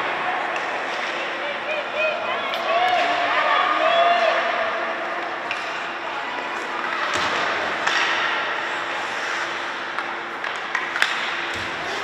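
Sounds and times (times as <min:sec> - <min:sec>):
hockey sticks clacking on puck: 0:00.5 - 0:01.4, 0:05.1 - 0:05.9, 0:06.6 - 0:12.0.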